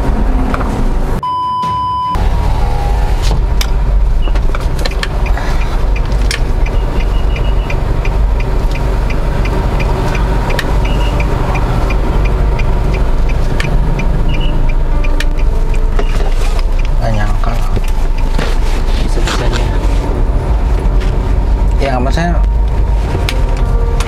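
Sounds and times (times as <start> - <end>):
engine and road rumble: 0.0 - 24.0
light high ticking: 4.5 - 16.0, 16.6 - 18.4.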